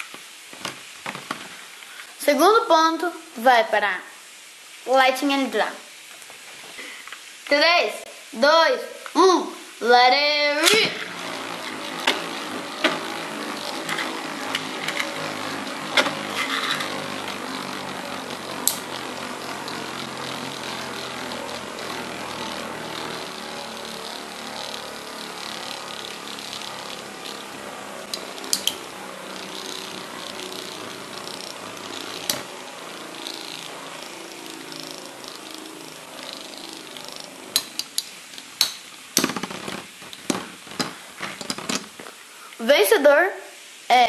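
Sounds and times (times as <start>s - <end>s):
spinning tops whirring: 10.1s - 42.1s
spinning tops clacking: 10.6s - 42.0s.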